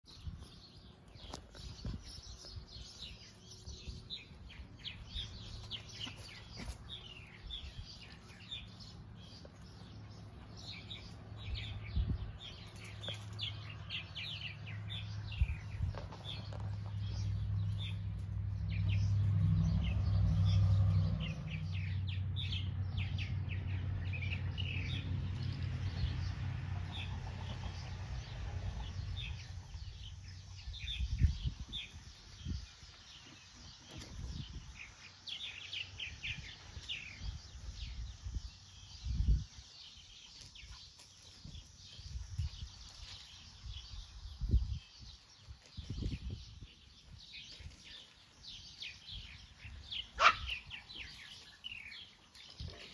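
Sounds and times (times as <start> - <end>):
birds chirping: 0.0 - 52.9.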